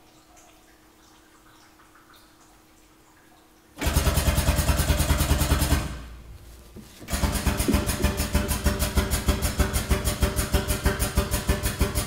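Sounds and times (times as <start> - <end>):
air-driven pump pulsing: 3.8 - 12.0.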